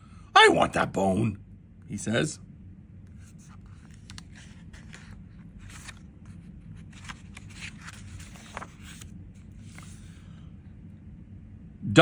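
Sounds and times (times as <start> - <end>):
book pages turning: 3.1 - 10.2.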